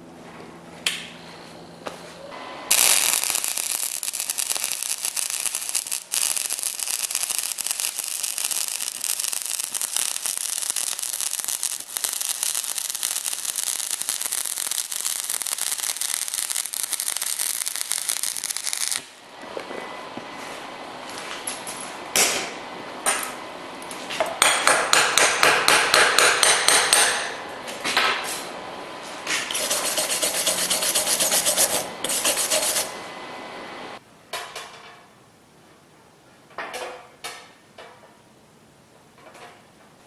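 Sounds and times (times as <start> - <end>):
welding arc crackling: 2.7 - 19.2, 29.5 - 32.9.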